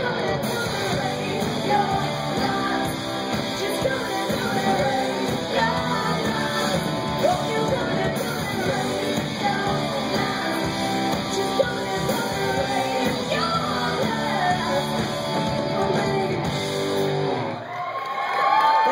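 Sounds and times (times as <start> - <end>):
woman singing: 0.0 - 16.6
bass guitar: 0.0 - 17.6
electric guitars: 0.0 - 17.7
drums: 0.0 - 18.9.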